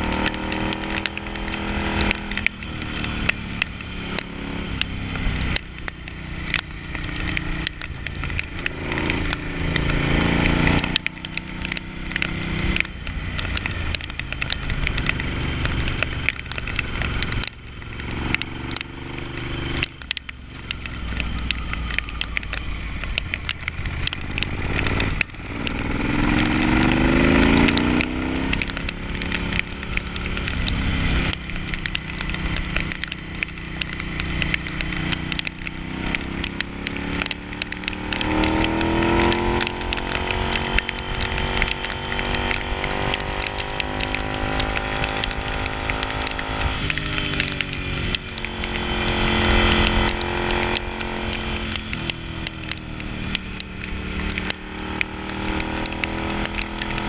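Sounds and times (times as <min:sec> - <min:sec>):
motorcycle engine: 0:00.0 - 0:57.0
short crackles: 0:00.0 - 0:57.0.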